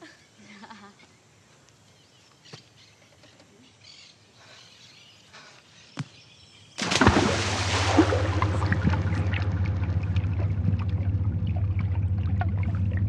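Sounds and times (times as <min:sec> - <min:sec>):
faint bird chirps: 0:00.0 - 0:06.8
steady low hum: 0:06.8 - 0:13.0.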